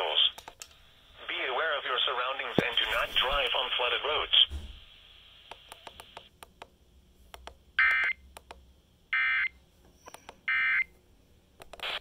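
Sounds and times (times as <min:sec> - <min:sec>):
radio static crackling: 0:00.0 - 0:00.4, 0:01.1 - 0:06.3, 0:11.6 - 0:12.0.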